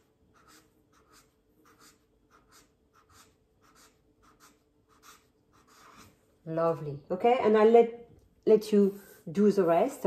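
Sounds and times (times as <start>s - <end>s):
marker pen scratching on paper: 0.0s - 6.8s.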